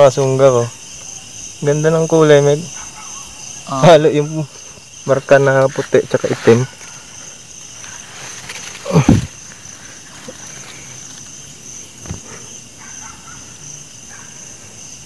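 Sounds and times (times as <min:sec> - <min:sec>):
crickets chirping: 0:00.0 - 0:15.0
rustling thump in leaves: 0:07.7 - 0:11.4.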